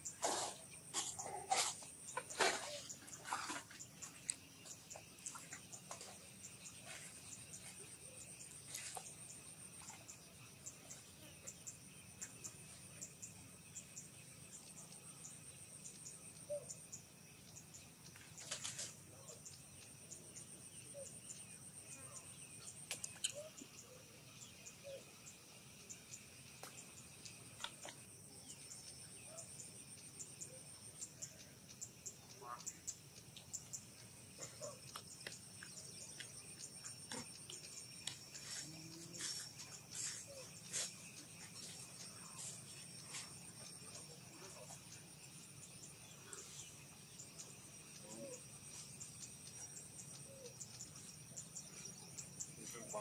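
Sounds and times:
bird chirps: 0.0s - 25.1s
insects buzzing: 0.0s - 53.0s.

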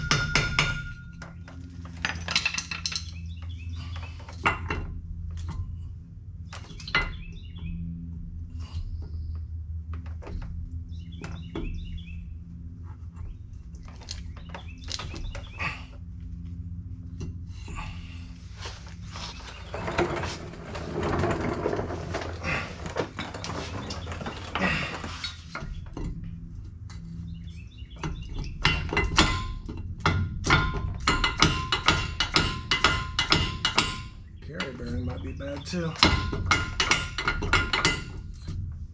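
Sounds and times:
steady low hum: 0.0s - 38.9s
scraping rustle: 17.7s - 25.9s.

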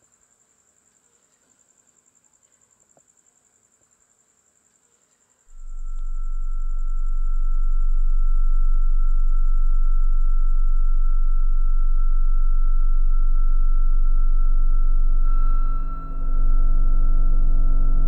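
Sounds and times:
deep electronic hum: 5.5s - 18.0s
high pure tone: 5.5s - 18.0s.

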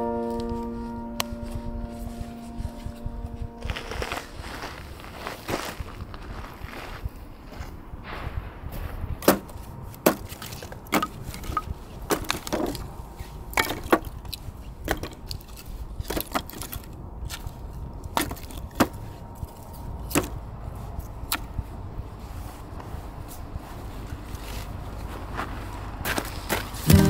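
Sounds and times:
firewood cracking and snapping: 8.7s - 20.4s.

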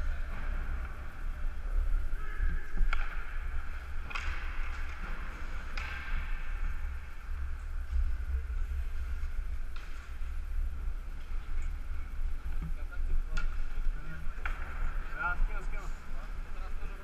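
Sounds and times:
hockey stick clacking on puck: 2.8s - 3.3s, 4.0s - 6.8s.

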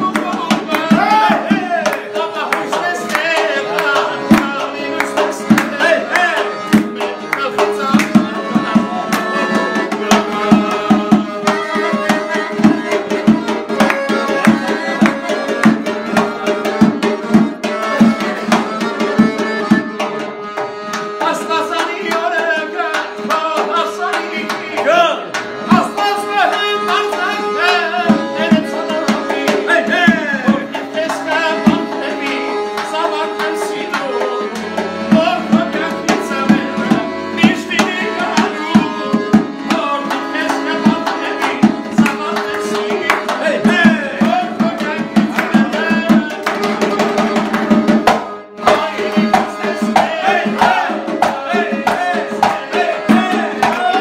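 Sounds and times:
accordion melody: 0.0s - 54.0s.

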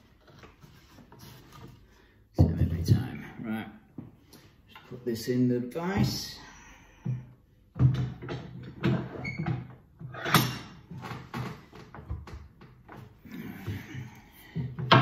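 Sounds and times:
wooden knocks and clunks: 2.4s - 3.1s, 5.9s - 6.3s, 7.0s - 10.0s, 10.8s - 15.0s.

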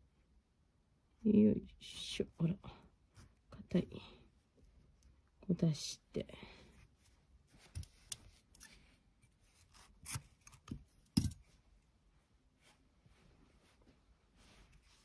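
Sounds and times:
cord rubbing and scraping: 6.9s - 11.4s.

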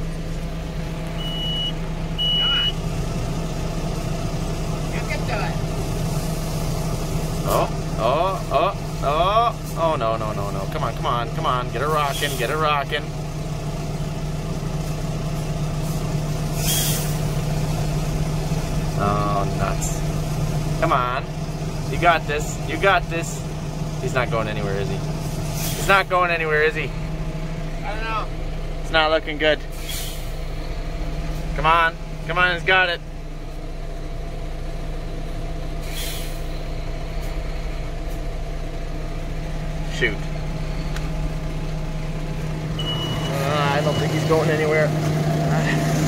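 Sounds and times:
heavy diesel engine running: 0.0s - 46.0s
air hiss: 15.8s - 17.2s, 35.8s - 36.6s.

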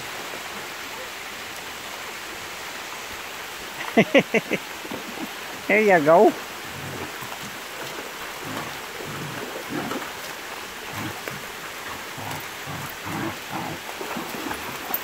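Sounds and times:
creek water running over rock: 0.0s - 15.0s
dogs splashing through water: 3.8s - 15.0s.

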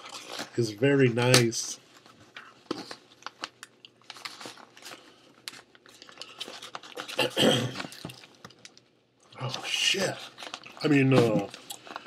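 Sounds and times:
paper wrapping crinkling: 1.9s - 8.8s, 9.4s - 12.0s.

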